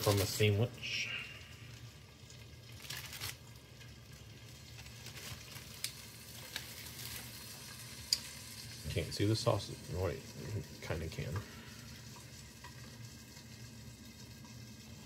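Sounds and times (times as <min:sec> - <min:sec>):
egg sizzling in a pan: 0:00.0 - 0:15.0.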